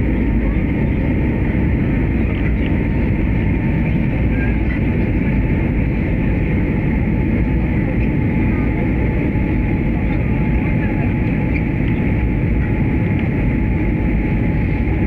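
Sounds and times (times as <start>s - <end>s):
airliner cabin engine rumble: 0.0s - 15.0s.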